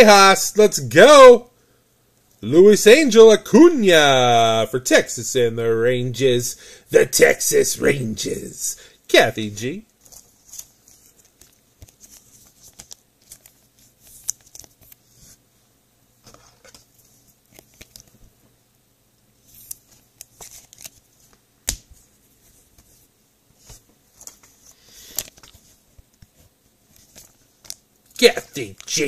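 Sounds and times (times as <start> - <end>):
cards and sleeves being handled: 9.6 - 15.5, 16.2 - 18.4, 19.4 - 29.0.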